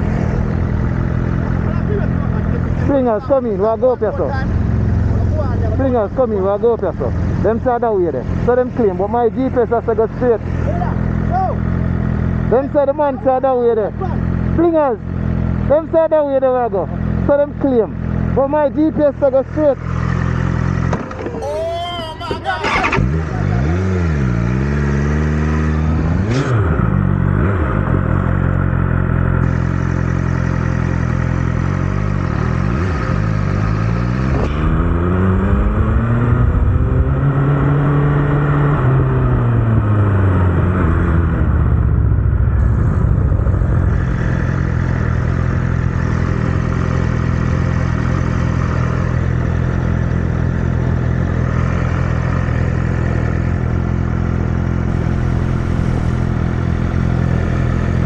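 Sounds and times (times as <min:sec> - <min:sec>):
motorcycle engine running: 0:00.0 - 0:35.8, 0:41.3 - 0:58.0.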